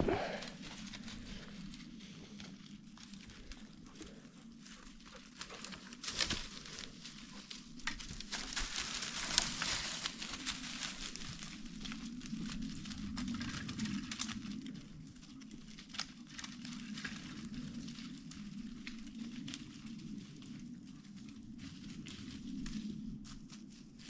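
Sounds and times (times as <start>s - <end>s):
footsteps crunching through dry litter: 0.0s - 24.0s.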